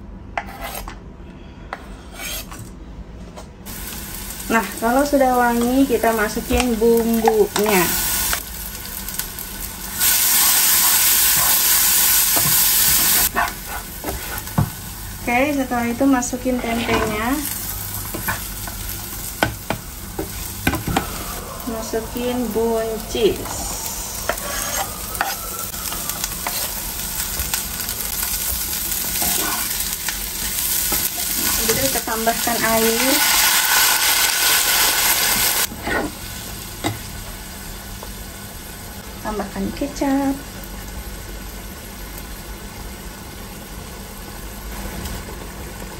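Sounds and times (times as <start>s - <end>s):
spice paste sizzling in oil: 3.7s - 16.2s, 21.7s - 38.2s
spatula stirring in pan: 24.2s - 26.8s, 29.1s - 31.7s.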